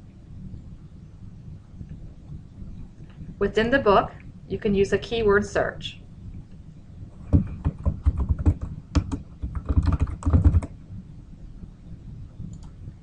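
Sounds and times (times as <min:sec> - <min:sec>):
typing on keyboard: 0:07.3 - 0:10.8
faint clicks: 0:12.5 - 0:12.8.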